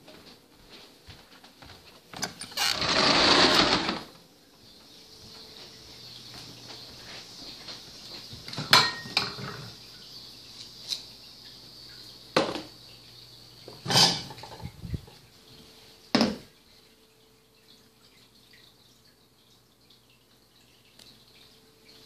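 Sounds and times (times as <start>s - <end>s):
dishes knocking and clinking: 8.5s - 9.7s, 13.7s - 14.8s, 16.2s - 16.5s.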